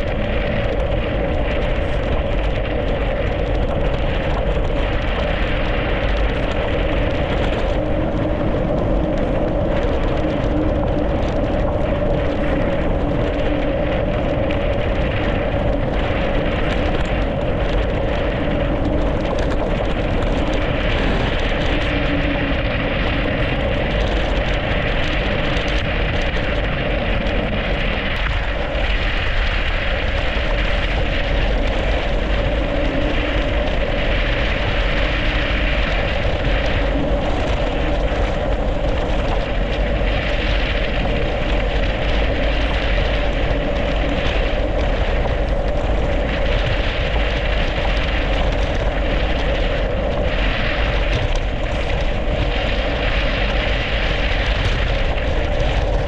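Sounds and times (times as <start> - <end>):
bike tyres rolling on icy road: 0.0 - 56.0
wind rushing on microphone: 0.0 - 56.0.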